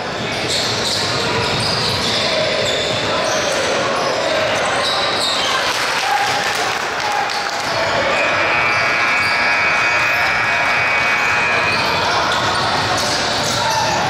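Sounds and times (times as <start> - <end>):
voices of players and spectators: 0.0 - 14.0.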